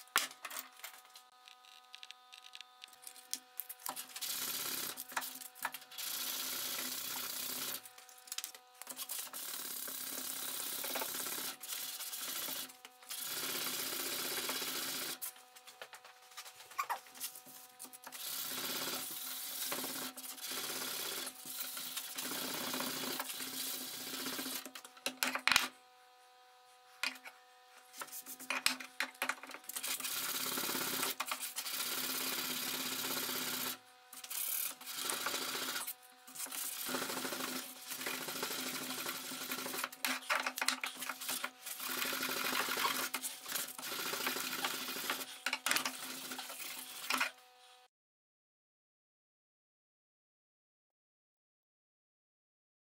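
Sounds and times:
sandpaper rubbing on steel blade: 0:08.9 - 0:12.7, 0:39.3 - 0:47.3.

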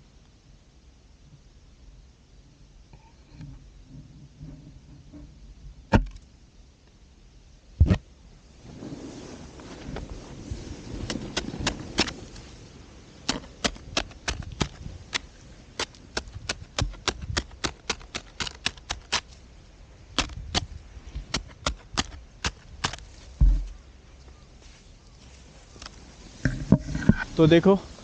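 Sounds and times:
snow crunching: 0:08.5 - 0:26.6
ski pole tapping crusty snow: 0:09.6 - 0:12.5, 0:13.2 - 0:19.4, 0:20.2 - 0:23.8.

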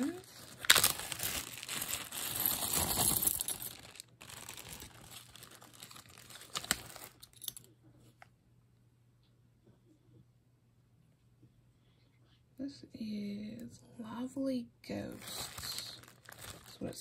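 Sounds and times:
plastic bag crinkling: 0:00.0 - 0:07.6, 0:15.1 - 0:17.0.

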